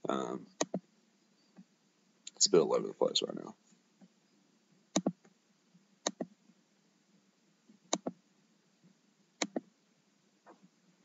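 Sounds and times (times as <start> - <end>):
computer mouse double clicks: 5.0 - 5.2, 9.4 - 9.6.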